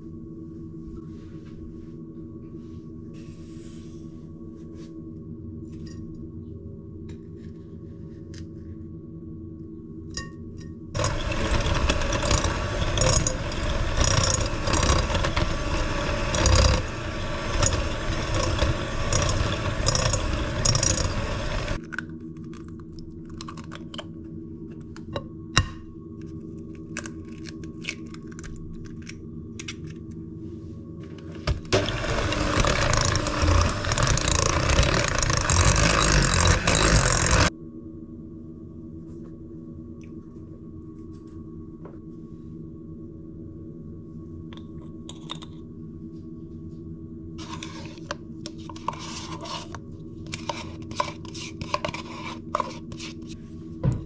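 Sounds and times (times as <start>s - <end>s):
electric hand mixer beating batter: 11.0s - 21.8s, 31.5s - 37.5s.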